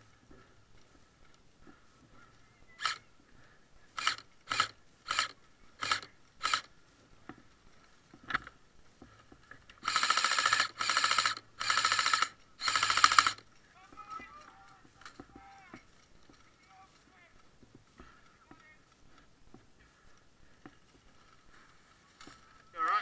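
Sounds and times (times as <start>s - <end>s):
airsoft rifle shots: 9.8s - 13.4s.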